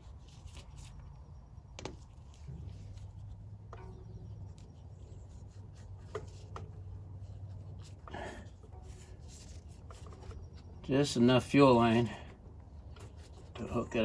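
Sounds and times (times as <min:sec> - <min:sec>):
low steady hum: 0:00.0 - 0:14.0
rubber hose rubbing: 0:01.8 - 0:10.8.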